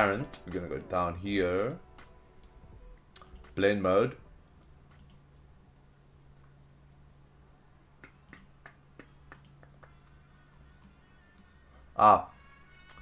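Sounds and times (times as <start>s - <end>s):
faint steady hum: 0.0s - 13.0s
computer mouse clicks: 3.2s - 3.6s, 4.6s - 5.5s, 8.0s - 10.0s.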